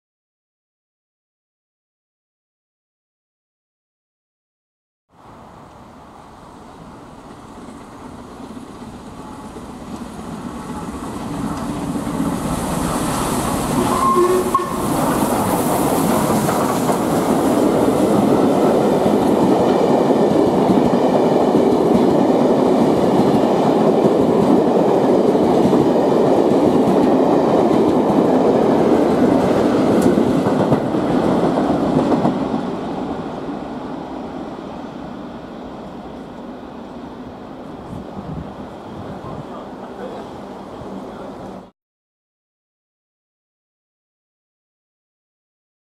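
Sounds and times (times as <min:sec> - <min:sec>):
steam locomotive passing: 0:05.1 - 0:41.7
train wheels rumbling on rails: 0:05.3 - 0:41.7.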